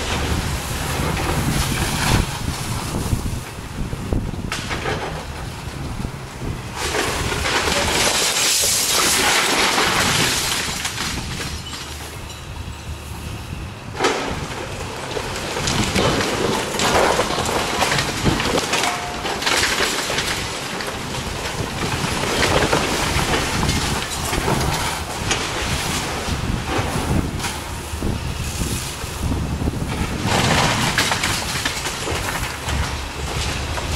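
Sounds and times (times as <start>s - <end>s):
brick and masonry crashing: 4.4s - 12.2s, 14.0s - 28.2s, 29.2s - 33.9s.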